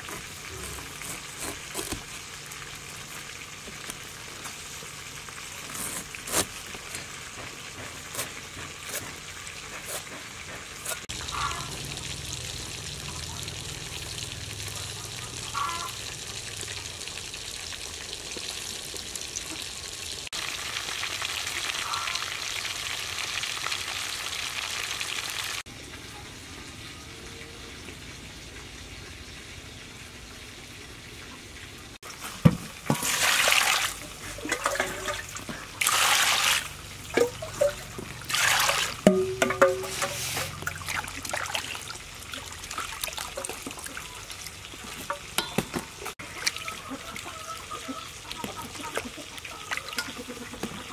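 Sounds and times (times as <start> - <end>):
knife cutting pineapple: 0.0 - 2.1
water splashes: 32.0 - 50.9.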